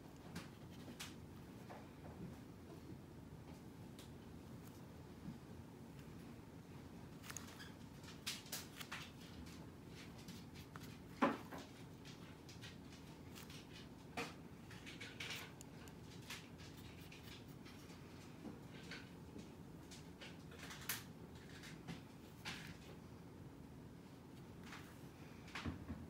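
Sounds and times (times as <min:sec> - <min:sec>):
low room hum: 0:00.0 - 0:26.0.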